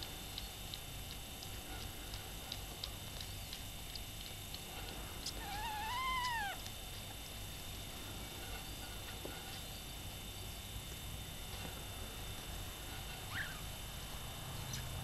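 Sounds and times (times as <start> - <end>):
kitten mewing: 5.2 - 6.7.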